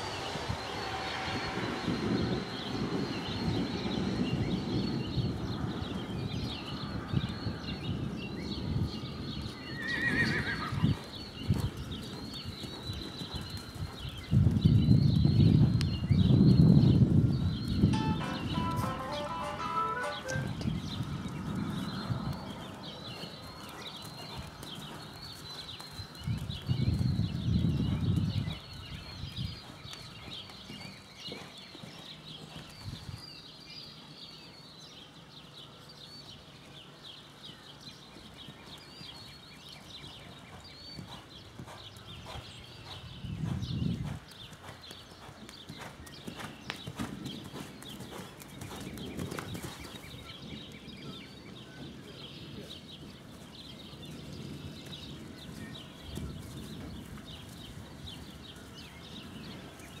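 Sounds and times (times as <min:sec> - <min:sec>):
small birds chirping: 0:00.0 - 1:00.0
horse hoofbeats on sand: 0:10.2 - 0:33.6, 0:37.4 - 0:51.0, 0:52.4 - 1:00.0.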